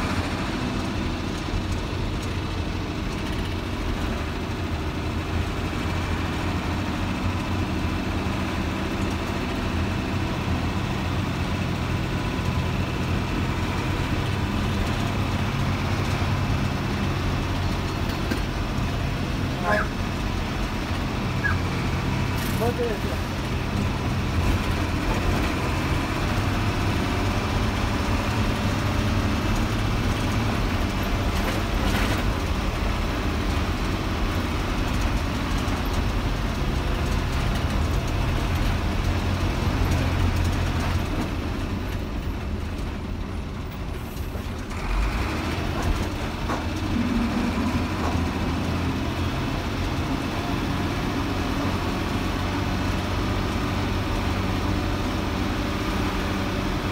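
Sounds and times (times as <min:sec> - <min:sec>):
bus diesel engine drone: 0:00.0 - 0:56.9.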